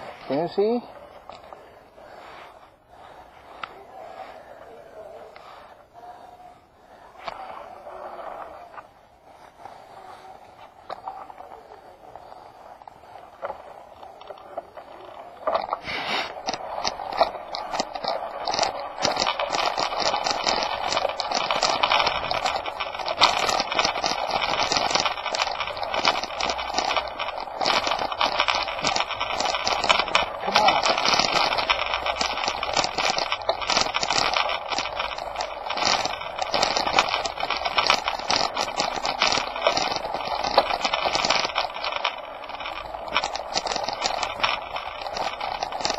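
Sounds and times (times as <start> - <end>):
rattling and crunching on gravel: 9.6 - 45.9.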